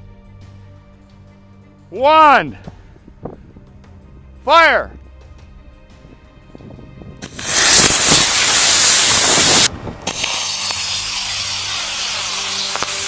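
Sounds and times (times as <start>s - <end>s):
rocket motors burning hiss: 7.2s - 13.0s.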